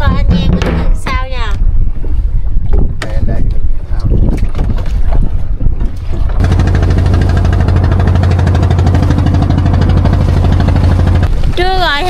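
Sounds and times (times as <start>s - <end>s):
boat engine running: 4.4s - 12.0s.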